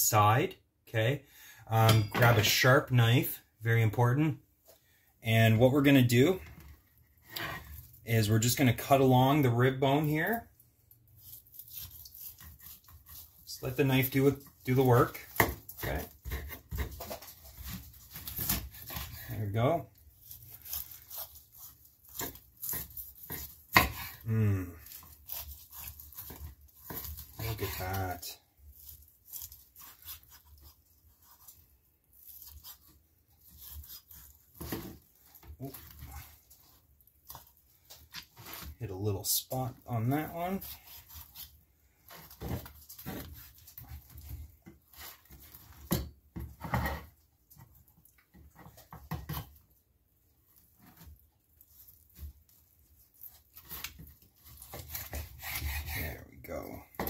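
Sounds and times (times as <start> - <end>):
knife scraping through ribs: 7.2 - 8.0, 11.1 - 38.8, 40.0 - 45.9, 50.5 - 56.6.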